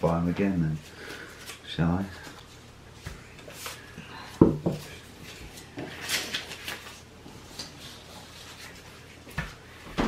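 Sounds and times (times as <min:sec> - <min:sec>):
paper money rustling: 0:04.8 - 0:09.6.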